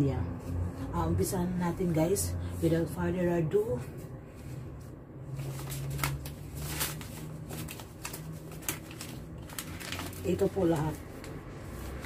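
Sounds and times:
paper envelopes rustling: 5.2 - 12.0.

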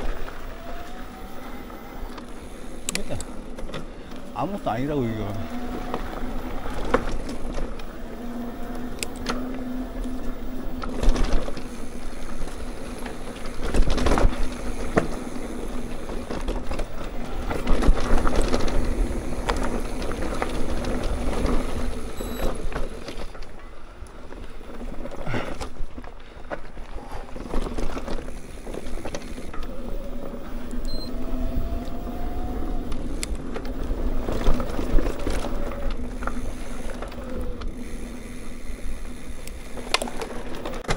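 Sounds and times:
bike knocking and rattling: 0.0 - 40.9
bike tyres rumbling on dirt: 0.0 - 40.9.

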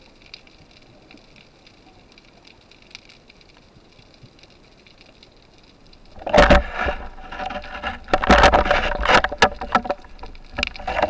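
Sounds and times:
underwater knocking and clicking: 5.9 - 11.0
sharp knocks underwater: 6.2 - 11.0.

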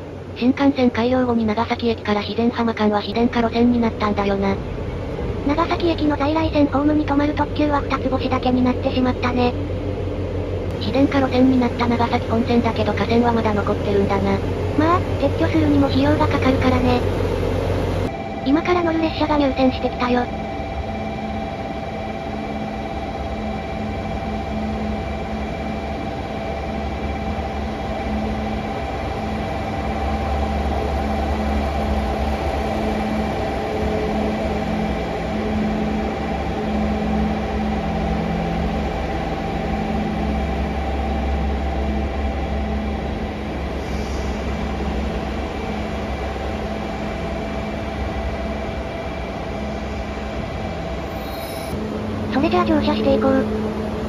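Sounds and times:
diesel railcar engine drone: 0.0 - 54.0.

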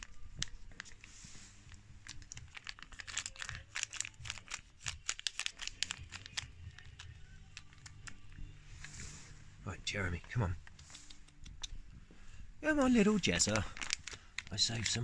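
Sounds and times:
foil pouch crinkling: 0.0 - 8.4, 12.6 - 15.0.

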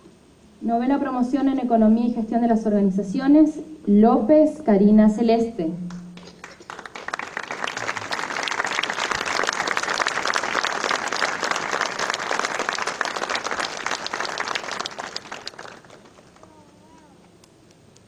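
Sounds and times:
audience clapping: 5.9 - 17.5.

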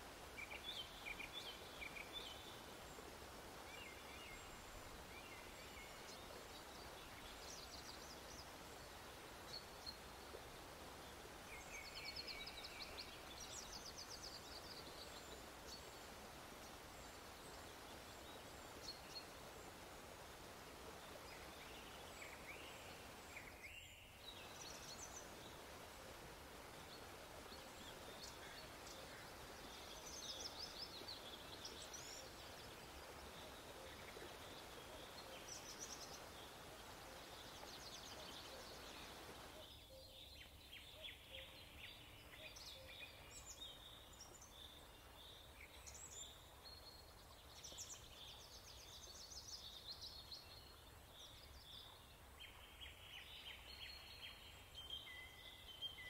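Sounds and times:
steady background hiss: 0.0 - 56.0
birds chirping: 16.6 - 40.4.

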